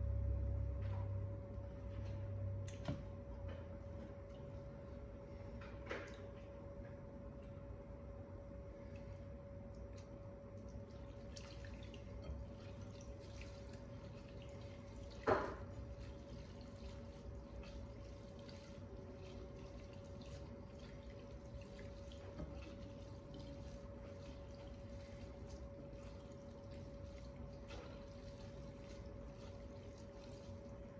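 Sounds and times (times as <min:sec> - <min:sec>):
wet squishing of noodles: 0:08.7 - 0:30.9.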